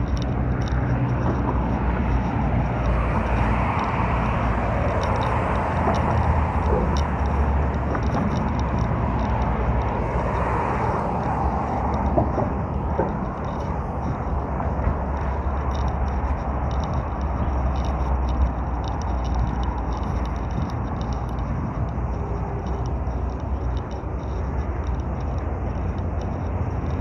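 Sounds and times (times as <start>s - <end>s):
passing cars rushing: 0.0s - 27.0s.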